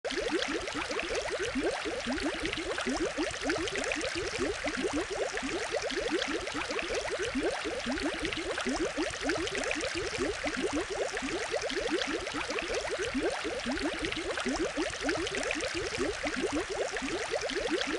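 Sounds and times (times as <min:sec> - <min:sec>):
aquarium water bubbling: 0:00.1 - 0:17.9.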